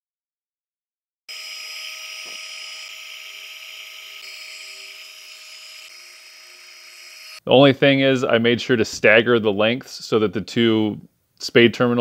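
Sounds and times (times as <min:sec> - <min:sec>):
heat gun fan whine: 0:01.3 - 0:07.4.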